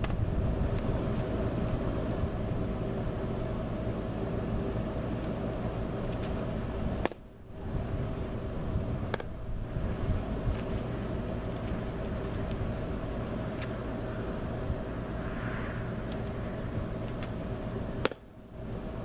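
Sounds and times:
steady low rumble: 0:00.0 - 0:19.0
baseball smacking into mitt: 0:09.1 - 0:09.3, 0:18.0 - 0:18.3.

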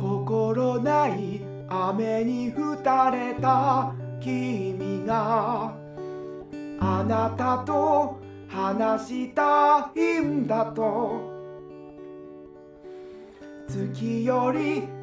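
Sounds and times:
person singing with vibrato: 0:00.0 - 0:05.8, 0:06.8 - 0:11.6, 0:13.7 - 0:15.0
acoustic guitar: 0:00.0 - 0:15.0.

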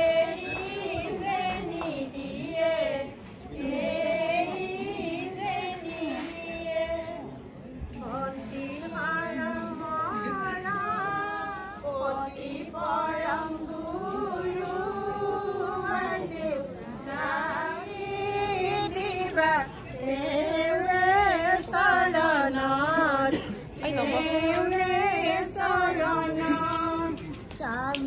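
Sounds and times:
high voices singing: 0:00.0 - 0:28.0.

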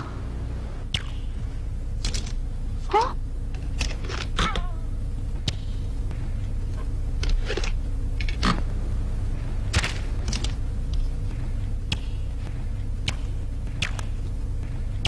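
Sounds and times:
steady low hum: 0:00.0 - 0:15.0
rod snapping and swishing: 0:13.0 - 0:14.3.

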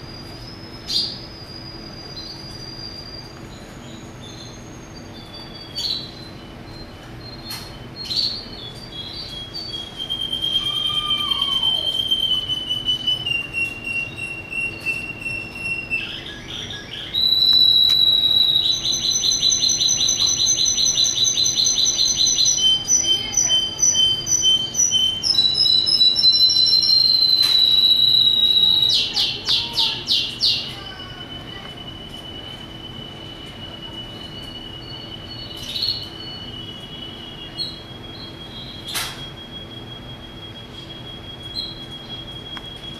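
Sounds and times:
canary singing: 0:00.0 - 0:42.9.

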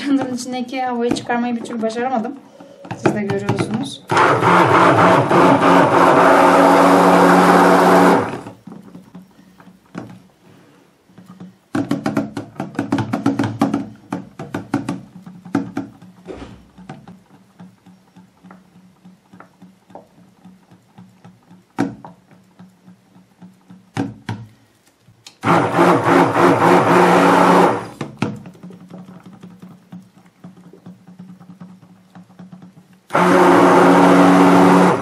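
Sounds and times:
stick blender running in liquid: 0:03.1 - 0:08.6, 0:25.4 - 0:35.0
quick knocks and taps: 0:11.2 - 0:25.4.

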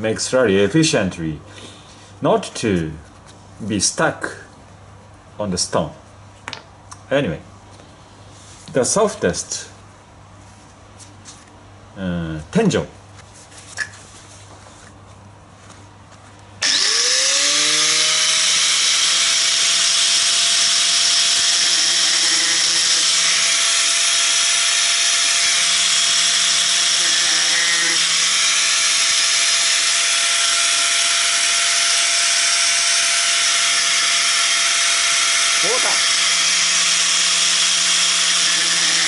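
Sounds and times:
electric disc grinder whining: 0:16.6 - 0:39.0
grinder grinding sharpening stone: 0:16.6 - 0:39.0.

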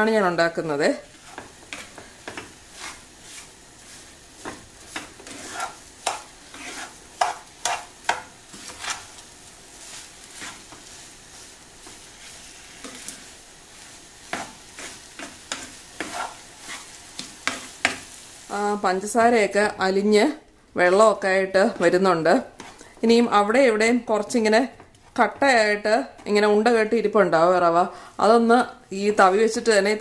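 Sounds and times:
low hiss from pan: 0:00.0 - 0:30.0
ladle scraping a pan: 0:01.2 - 0:09.2, 0:14.3 - 0:18.0.

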